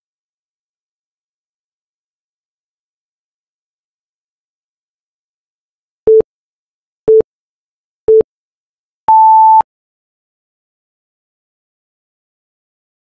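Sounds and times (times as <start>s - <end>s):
timer beeps: 9.1s - 9.6s.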